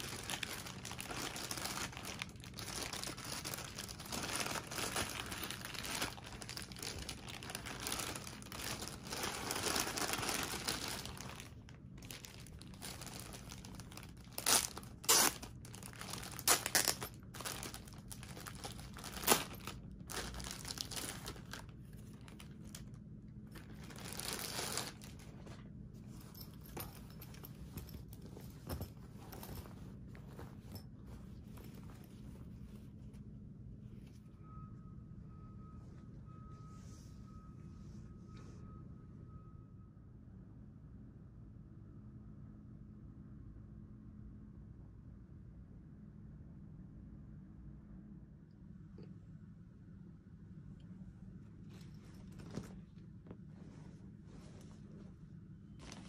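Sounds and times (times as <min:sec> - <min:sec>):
sharp plastic crackles: 0:00.0 - 0:23.0
plastic packaging crinkling: 0:00.0 - 0:25.6
fabric bag rustling: 0:00.0 - 0:33.2, 0:51.6 - 0:56.0.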